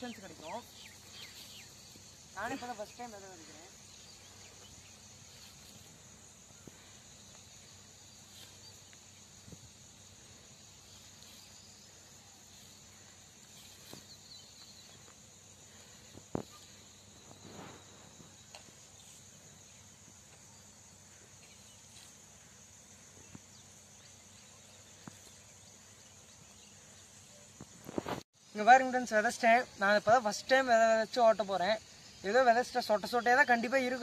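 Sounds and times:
insects chirring: 0:00.0 - 0:34.0.

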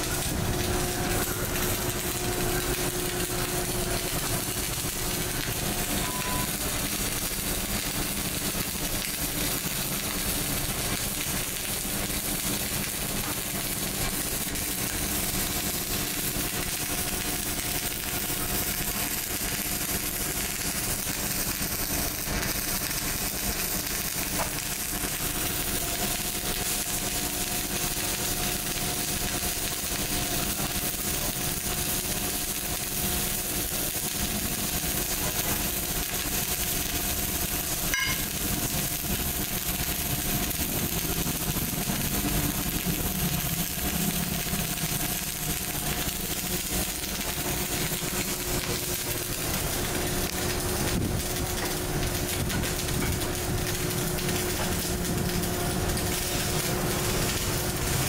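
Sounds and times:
machine hum: 0:00.0 - 0:30.3
welding arc crackling: 0:00.0 - 0:58.0.

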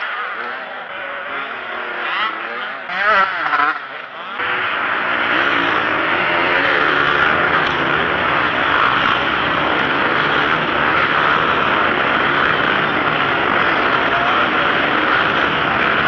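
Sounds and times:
motocross bike engines: 0:00.0 - 0:16.0.

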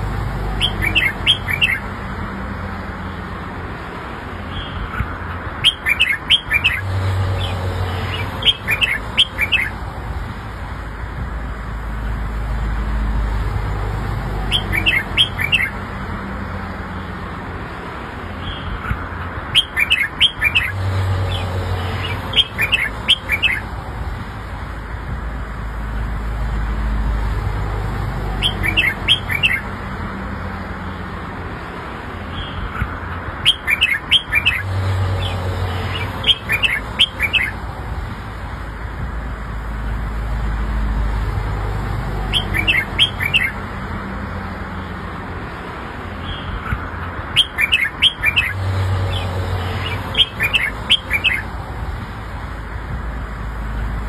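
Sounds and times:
bird chirpy whistled song: 0:00.6 - 0:01.8, 0:05.6 - 0:06.9, 0:08.2 - 0:09.7, 0:14.5 - 0:15.8, 0:19.5 - 0:20.8, 0:22.0 - 0:23.6, 0:28.4 - 0:29.6, 0:33.4 - 0:34.7, 0:36.0 - 0:37.6, 0:42.3 - 0:43.6, 0:47.4 - 0:51.5.

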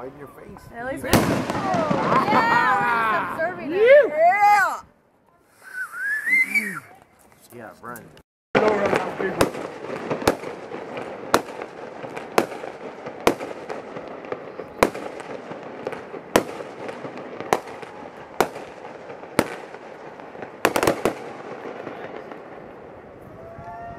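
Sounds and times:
fireworks bangs: 0:00.9 - 0:04.6, 0:08.6 - 0:23.9.

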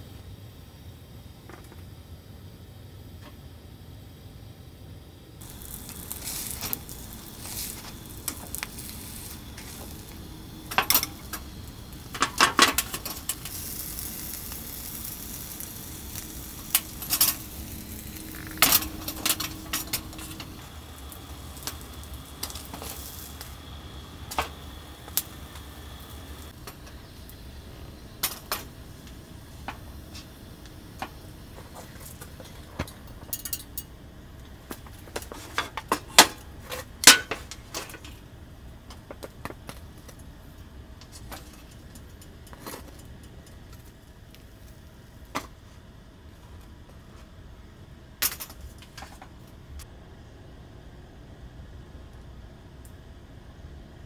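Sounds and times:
food hissing in press: 0:05.4 - 0:32.4.

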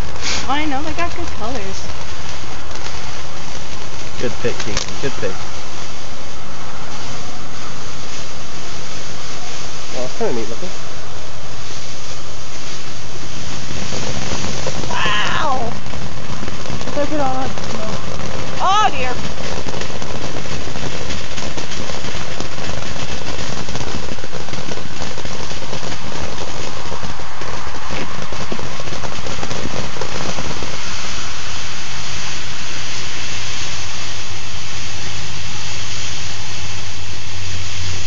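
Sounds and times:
firework crackle: 0:00.0 - 0:38.0
firework fountain rushing hiss: 0:00.0 - 0:38.0.

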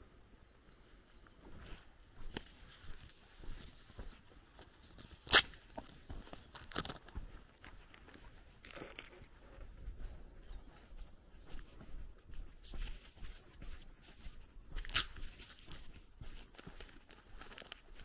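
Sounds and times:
footsteps on a dirt path: 0:00.8 - 0:18.0
paper wrapper crinkling: 0:04.9 - 0:09.2, 0:16.5 - 0:18.0.

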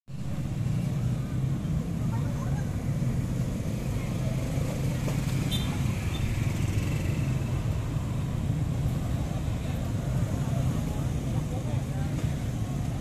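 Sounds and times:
motorcycle engines running: 0:00.2 - 0:13.0
people's voices: 0:01.7 - 0:06.1, 0:09.1 - 0:13.0.

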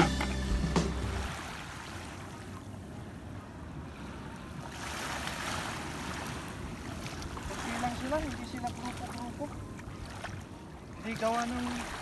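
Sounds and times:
water sloshing around wading legs: 0:04.6 - 0:12.0.

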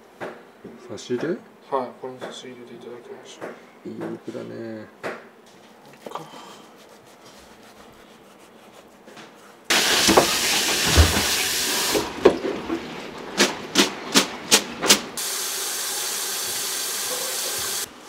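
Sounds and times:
loud steady hiss: 0:09.7 - 0:12.1, 0:14.9 - 0:18.0.

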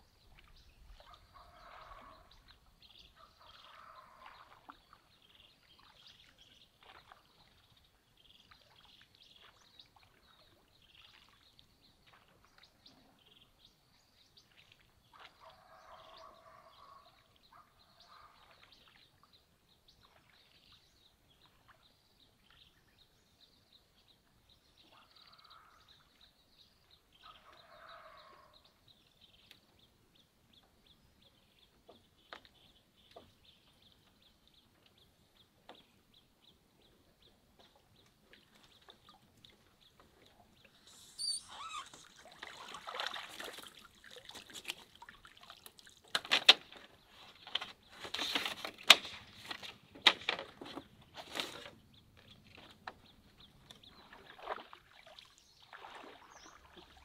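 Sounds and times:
birds chirping: 0:26.9 - 0:42.7.

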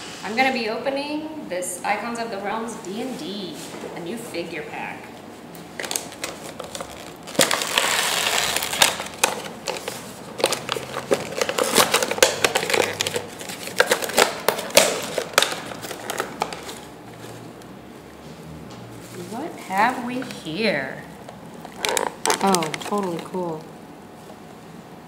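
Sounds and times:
plastic clicking and crinkling: 0:05.6 - 0:16.9, 0:21.2 - 0:23.7
packaging rasping rustle: 0:05.6 - 0:17.5, 0:21.2 - 0:23.6.

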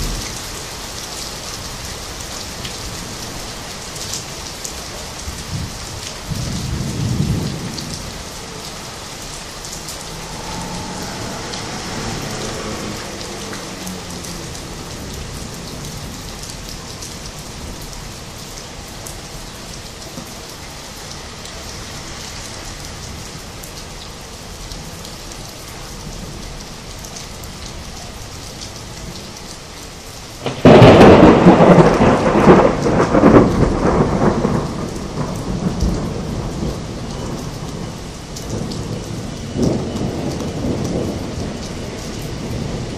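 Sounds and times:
steady rain falling: 0:00.0 - 0:42.9
low rolling thunder: 0:05.0 - 0:18.4, 0:30.4 - 0:42.9
loud thunderclap: 0:30.4 - 0:37.4.

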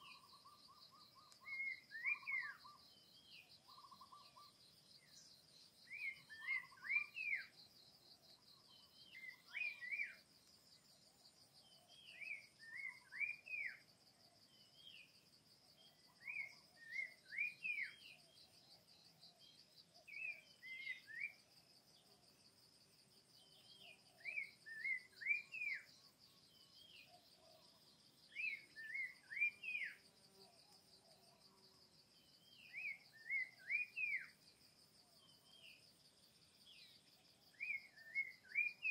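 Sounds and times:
songbird whistling: 0:01.2 - 0:02.6, 0:05.9 - 0:07.5, 0:28.3 - 0:30.0, 0:32.6 - 0:34.3, 0:37.6 - 0:38.9.

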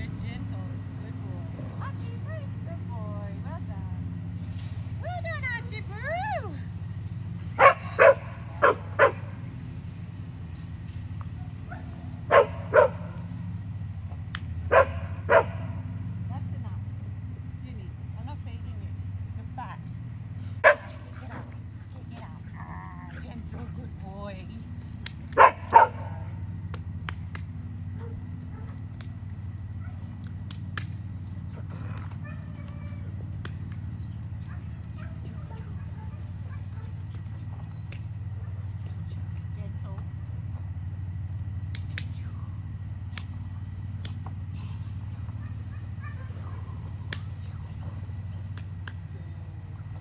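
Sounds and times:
steady low hum: 0:00.0 - 0:50.0
dog barking: 0:07.6 - 0:09.4, 0:11.7 - 0:13.2, 0:14.7 - 0:15.8, 0:20.6 - 0:21.4, 0:25.4 - 0:26.4, 0:28.0 - 0:28.8, 0:34.4 - 0:37.0, 0:45.2 - 0:47.0.

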